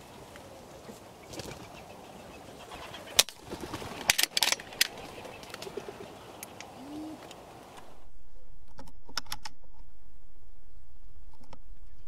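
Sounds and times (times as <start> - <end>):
pigeon wings clapping: 1.3 - 1.7, 3.2 - 6.0.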